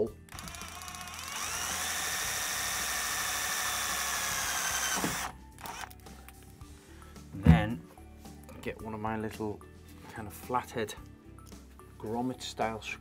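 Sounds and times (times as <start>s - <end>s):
cordless drill drilling into metal: 0.3s - 5.9s.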